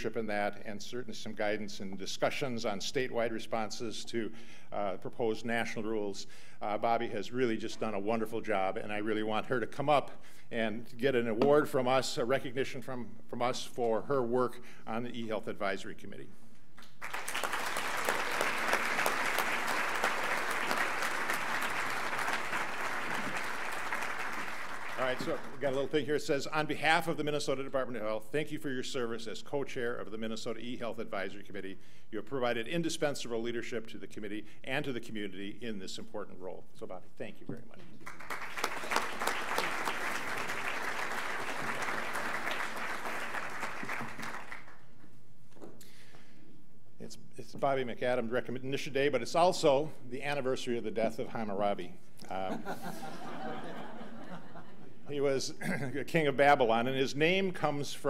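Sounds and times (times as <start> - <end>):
audience applauding: 16.8 - 25.8, 38.0 - 44.9.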